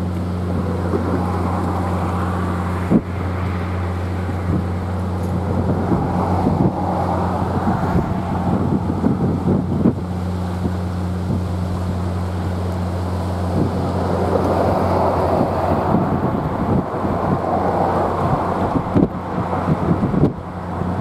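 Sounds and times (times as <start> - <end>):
steady low hum: 0.0 - 21.0
wind buffeting microphone: 0.0 - 21.0.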